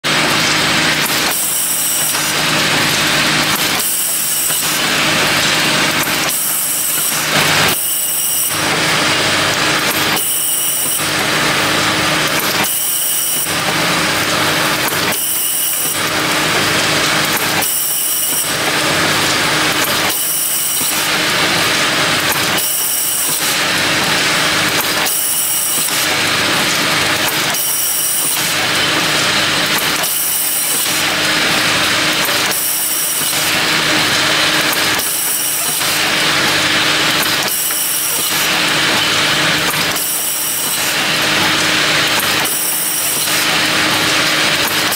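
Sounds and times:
filling machine running: 0.0 - 44.9.

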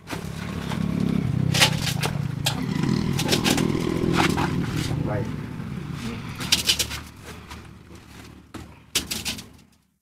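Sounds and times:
sharp knocks and clatter: 0.0 - 5.0, 6.3 - 9.8
scraping: 1.5 - 5.1.

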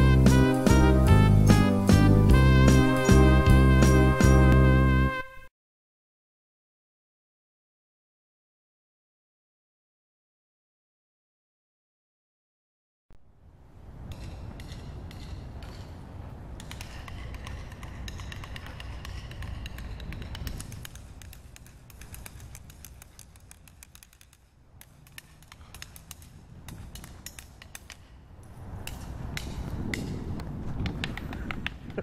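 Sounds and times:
faint irregular clicks: 16.6 - 32.0.

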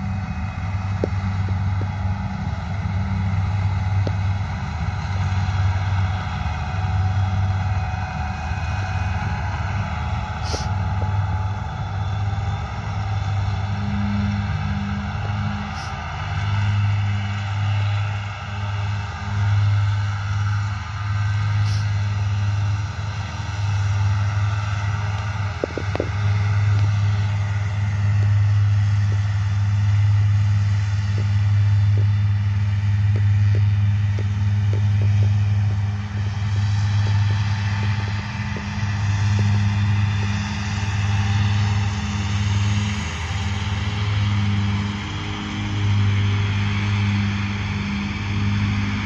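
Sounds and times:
mower diesel engine droning: 0.0 - 49.0.

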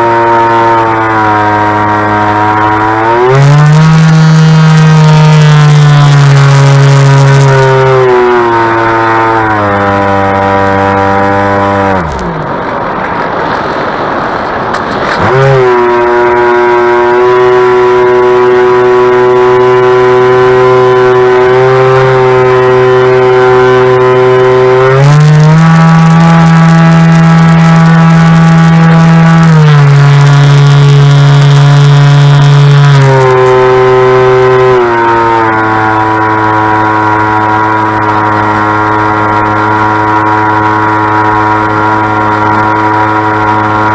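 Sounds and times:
electric motor and propeller whine: 0.0 - 43.9
rush of air: 12.1 - 16.1.

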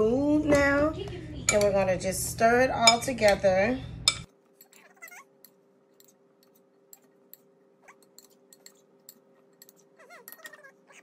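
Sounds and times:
cat meowing: 4.8 - 5.3, 10.0 - 11.0.

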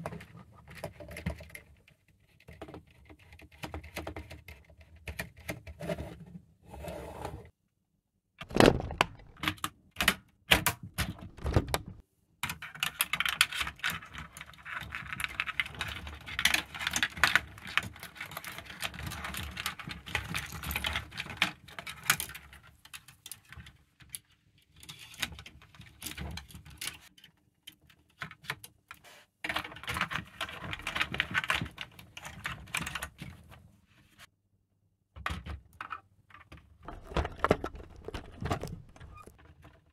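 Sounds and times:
plastic parts clattering and rustling: 8.4 - 9.7, 11.0 - 27.1, 29.5 - 33.6, 35.2 - 39.9
plastic parts clicking together: 8.4 - 14.0, 35.7 - 39.8.

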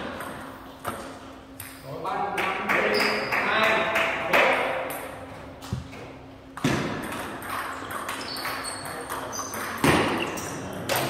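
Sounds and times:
table tennis balls clicking: 6.6 - 10.1.

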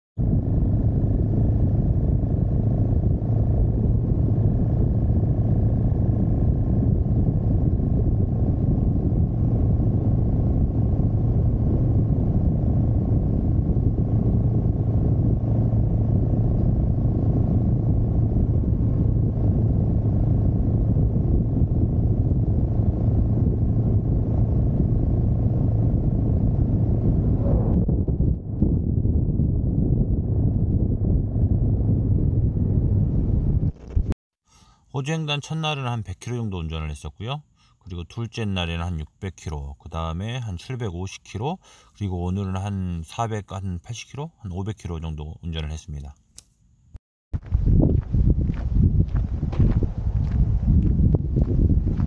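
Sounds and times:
motorcycle engine drone: 0.2 - 34.1, 47.4 - 52.0
wind and road noise: 0.2 - 43.5, 45.9 - 52.0.

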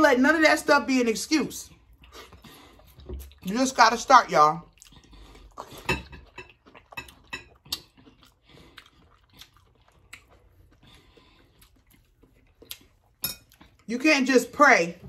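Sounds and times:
people chewing food: 1.6 - 13.9.

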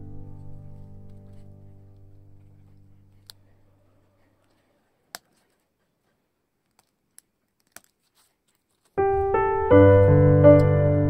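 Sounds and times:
piano music: 0.0 - 3.1, 9.0 - 11.0
wooden sticks clicking: 6.6 - 8.9.

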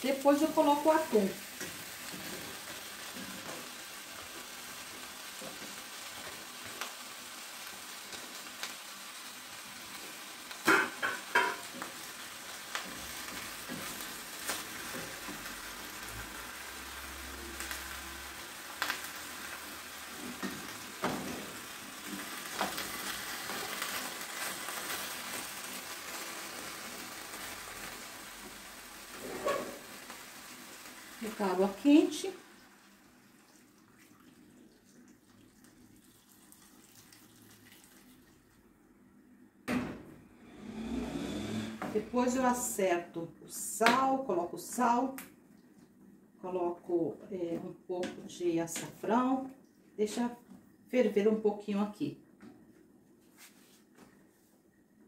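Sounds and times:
vegetables sizzling in a pan: 0.0 - 33.7, 40.3 - 42.9.

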